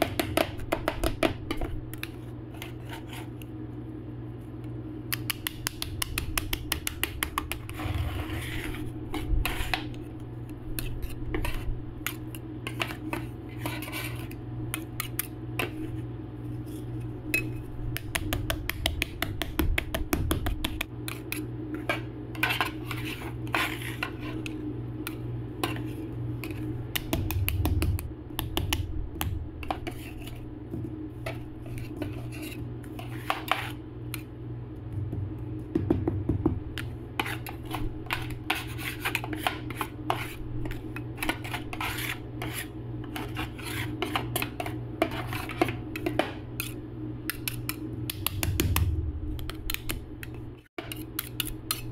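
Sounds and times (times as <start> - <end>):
metal spatulas clicking and scraping: 37.2 - 48.7, 49.4 - 51.9
low hum: 48.3 - 50.4.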